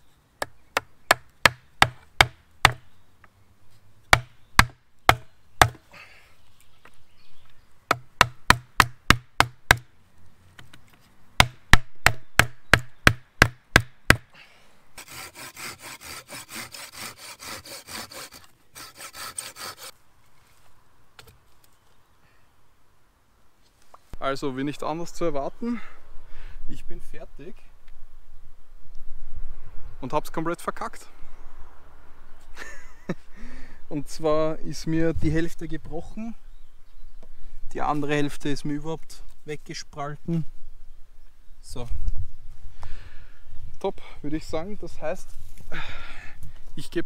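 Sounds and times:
rasping on wood: 0:15.0 - 0:19.9.

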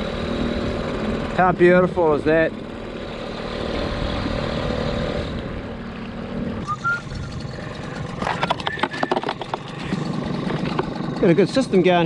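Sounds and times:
outboard motor running: 0:00.0 - 0:12.0
short squeak: 0:06.6 - 0:07.4, 0:08.4 - 0:09.4.

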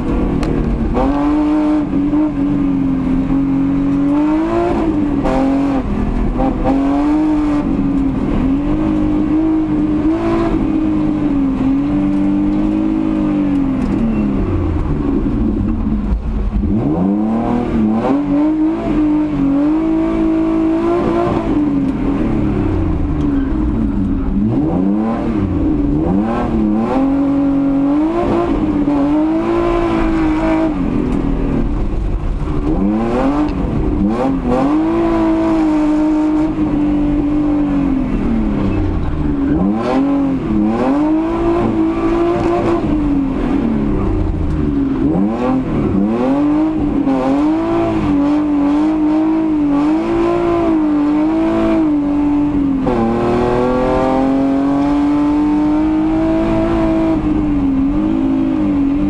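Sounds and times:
car engine revving hard: 0:00.0 - 0:59.0.

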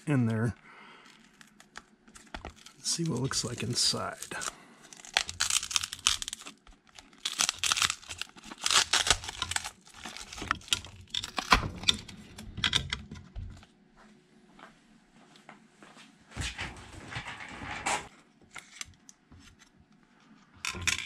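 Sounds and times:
wrap ripping and scraping: 0:02.7 - 0:11.0
knife cutting battery wrap: 0:04.2 - 0:11.6.

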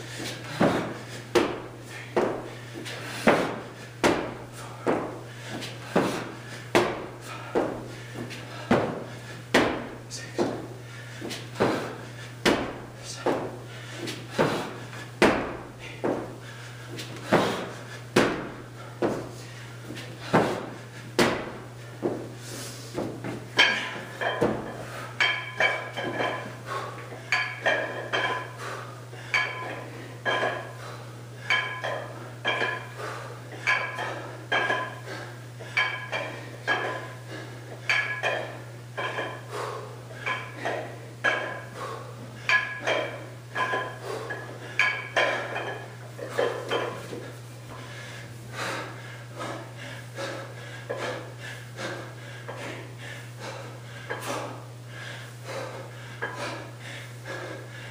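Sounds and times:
steady low hum: 0:00.0 - 0:57.9
iron weight plates clinking: 0:23.5 - 0:26.6, 0:27.3 - 0:28.6, 0:29.3 - 0:30.8, 0:31.4 - 0:33.0, 0:33.6 - 0:35.0, 0:35.6 - 0:37.2, 0:37.8 - 0:39.5, 0:40.2 - 0:41.8, 0:42.4 - 0:47.1.

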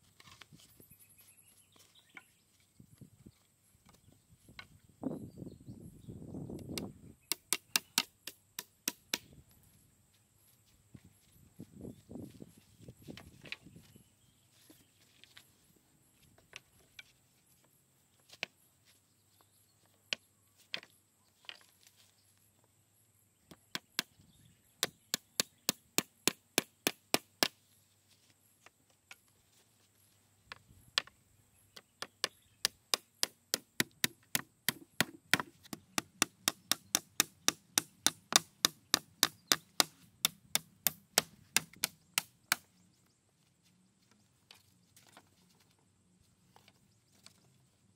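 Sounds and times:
hatchet striking wood: 0:06.8 - 0:09.3, 0:31.8 - 0:42.7.

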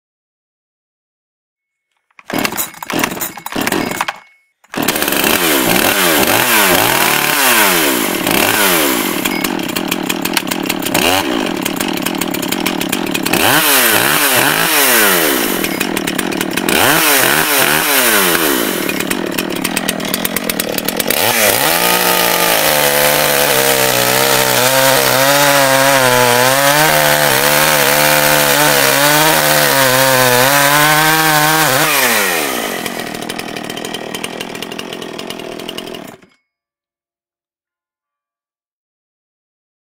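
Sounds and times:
chainsaw revving: 0:02.2 - 0:36.3.

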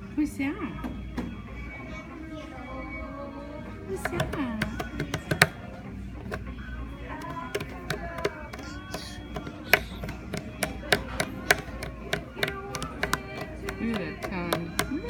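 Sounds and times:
hands slapping on wooden table: 0:04.0 - 0:05.6, 0:07.2 - 0:15.0.

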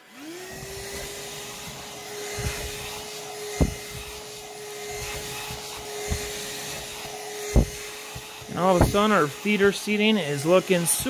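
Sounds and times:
handheld vacuum running: 0:00.0 - 0:11.0
dull knocks: 0:03.6 - 0:04.2, 0:05.0 - 0:09.1.

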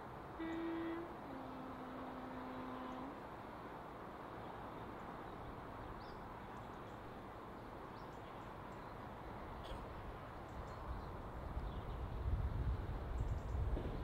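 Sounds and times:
locomotive horn: 0:00.4 - 0:03.2.

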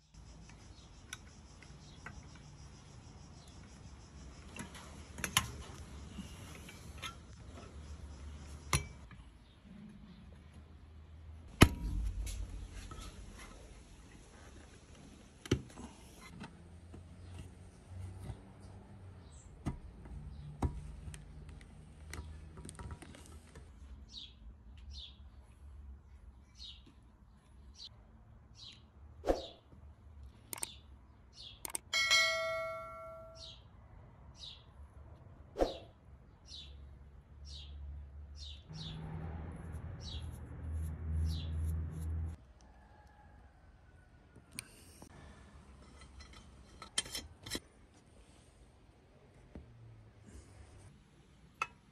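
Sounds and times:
small bird chirping: 0:00.0 - 0:05.2
low rumble: 0:11.6 - 0:14.0
metal part ringing: 0:31.6 - 0:33.6.

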